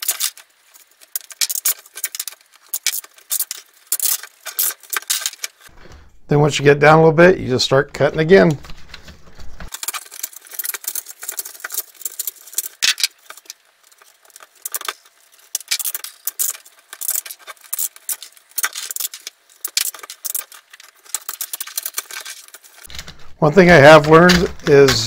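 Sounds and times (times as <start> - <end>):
knife snapping plastic strands: 24.0 - 25.0.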